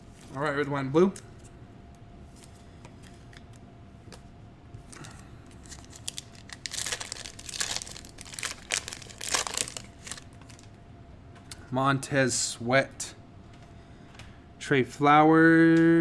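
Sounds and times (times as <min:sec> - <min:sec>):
foil card pack tearing and crinkling: 0:05.0 - 0:10.7.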